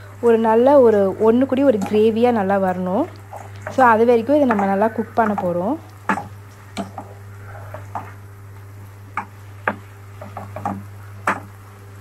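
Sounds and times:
steady low hum: 0:00.0 - 0:12.0
wooden spatula scraping a pan: 0:03.3 - 0:08.2.

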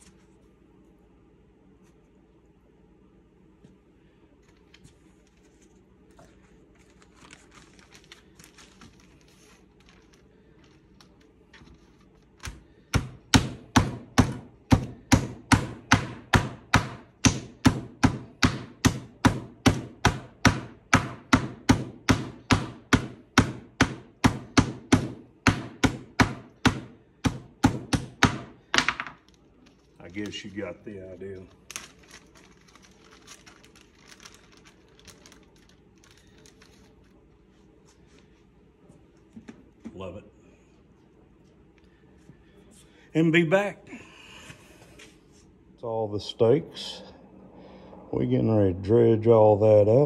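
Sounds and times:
plastic bag rustling: 0:04.4 - 0:12.4, 0:29.3 - 0:38.5
meat mallet pounding: 0:12.9 - 0:28.6.

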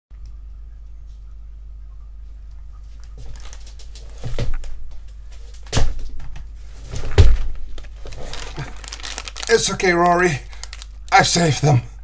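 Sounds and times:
rustling and shuffling: 0:02.2 - 0:11.1.

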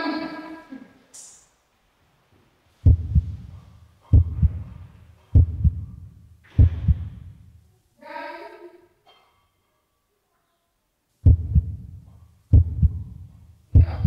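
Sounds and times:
heartbeat thumps: 0:02.8 - 0:07.6, 0:11.2 - 0:14.0.

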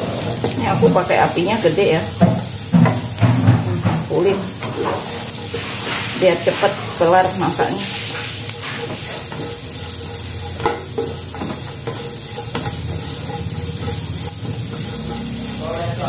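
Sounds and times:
spatula scraping a wok: 0:00.0 - 0:16.0
vegetables sizzling in oil: 0:00.0 - 0:16.0.

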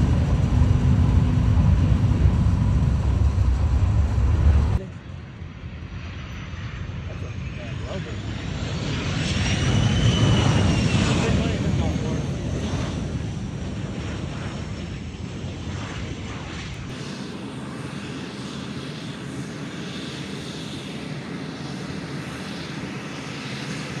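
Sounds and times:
low rumble: 0:00.0 - 0:05.5
jet engines hiss and whine: 0:00.0 - 0:24.0.

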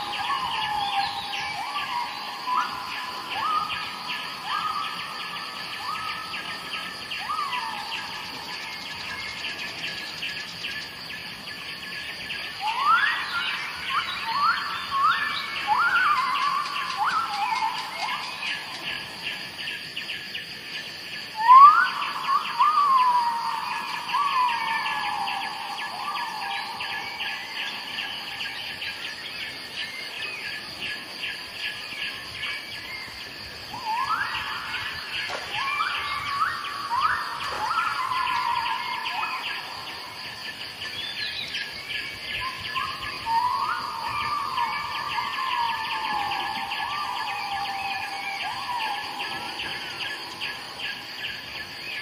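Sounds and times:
insects chirring: 0:00.0 - 0:52.0
bird whistling: 0:12.6 - 0:18.8, 0:21.4 - 0:28.1, 0:33.8 - 0:39.7, 0:42.4 - 0:50.2.

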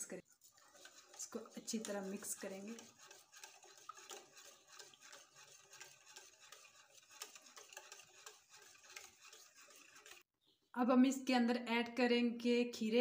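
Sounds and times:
whisk scraping in a dish: 0:00.0 - 0:10.3.

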